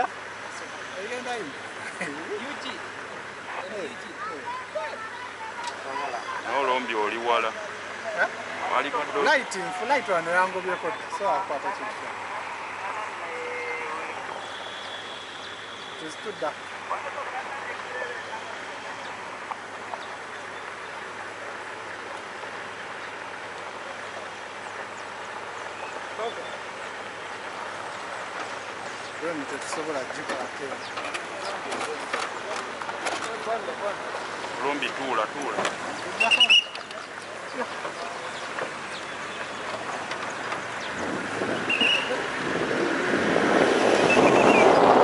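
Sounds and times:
vehicles driving on gravel: 0:00.0 - 0:45.0
wind buffeting microphone: 0:37.9 - 0:45.0.

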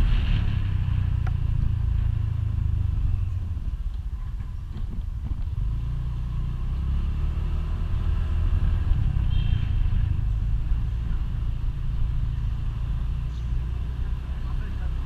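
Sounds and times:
motorcycle engine rumbling: 0:00.0 - 0:15.0.

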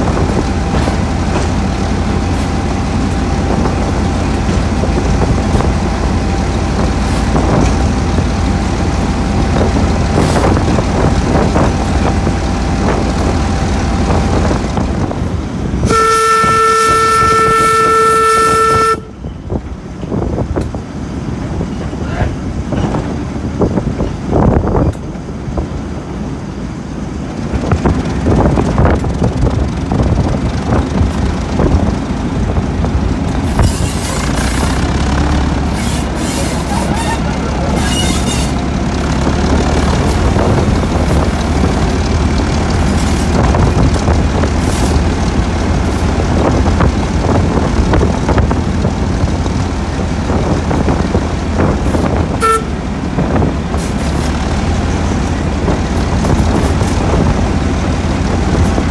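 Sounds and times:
diesel locomotive engine rumble: 0:00.0 - 0:58.9
horn toot: 0:15.8 - 0:19.2, 0:35.8 - 0:38.6, 0:52.3 - 0:52.8.

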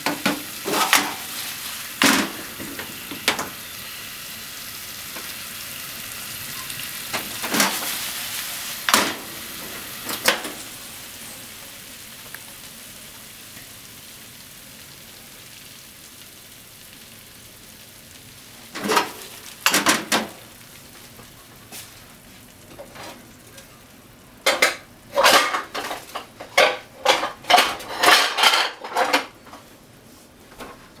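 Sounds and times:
food sizzling in a frying pan: 0:00.0 - 0:30.1
utensil scraping a pan: 0:00.1 - 0:02.9.

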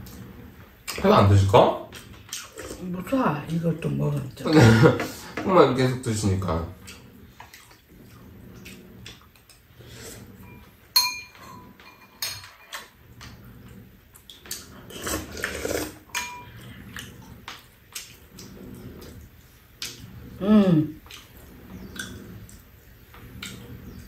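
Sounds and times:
soft eating sounds: 0:00.0 - 0:24.0
utensils clinking on bowls: 0:10.4 - 0:13.0, 0:16.1 - 0:16.7.

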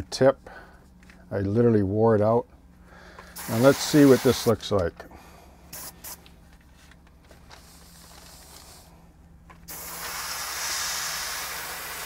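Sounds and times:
airbrush air hiss: 0:03.4 - 0:04.6, 0:05.7 - 0:06.2, 0:07.6 - 0:08.9, 0:09.7 - 0:12.0.

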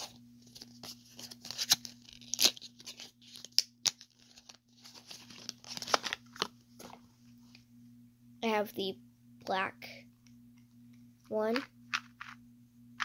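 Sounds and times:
packaging crinkling and tearing: 0:00.0 - 0:07.0.

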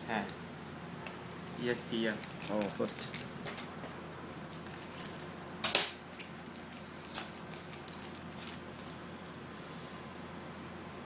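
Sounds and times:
foil wrapper crinkling: 0:01.9 - 0:03.8, 0:04.5 - 0:09.0
foil wrapper ripping: 0:02.1 - 0:03.3, 0:04.5 - 0:09.0.

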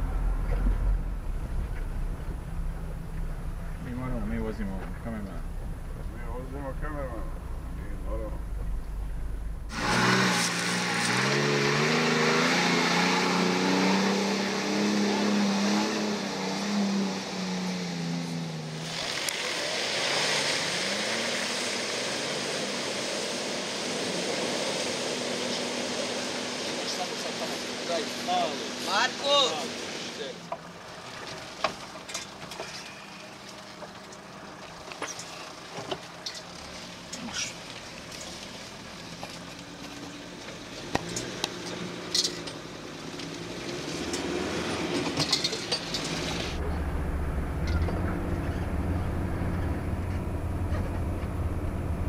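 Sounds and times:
off-road vehicle engine running: 0:00.0 - 0:52.0
truck engine pulling under load: 0:30.6 - 0:52.0.

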